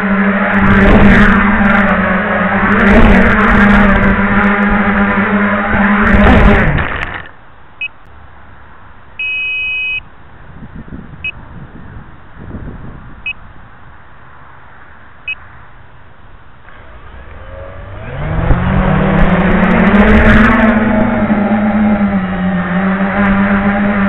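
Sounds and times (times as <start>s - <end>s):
wind rumble on microphone: 0.0s - 7.1s, 10.2s - 14.0s, 16.7s - 22.2s
drone motors whining: 0.0s - 8.0s, 16.6s - 24.0s
two-tone beep: 9.2s - 10.0s
short high beeps: 9.2s - 10.1s.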